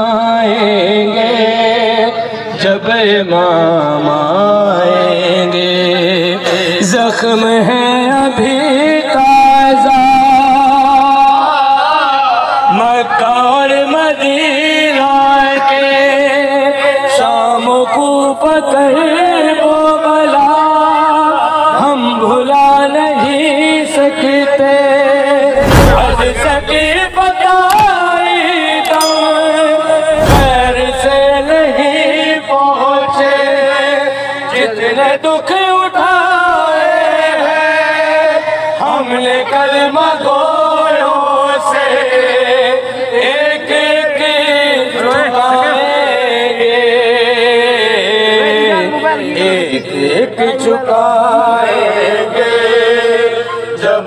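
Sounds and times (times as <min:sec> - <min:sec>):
man singing devotional song: 0:00.0 - 0:54.0
deep thumps: 0:25.6 - 0:27.4, 0:30.1 - 0:31.8.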